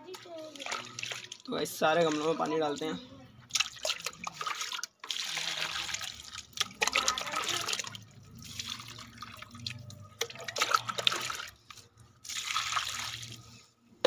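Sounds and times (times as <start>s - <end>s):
water splashing and trickling: 0.0s - 13.7s.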